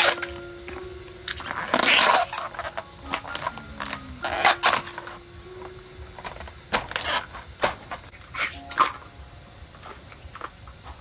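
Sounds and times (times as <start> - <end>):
banana bracts tearing and snapping: 1.3 - 2.8.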